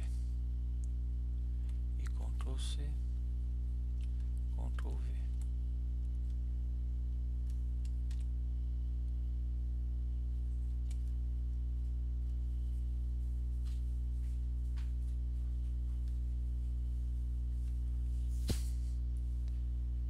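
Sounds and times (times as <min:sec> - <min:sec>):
low electrical hum: 0:00.0 - 0:20.0
mouse and keyboard clicks: 0:07.5 - 0:08.3.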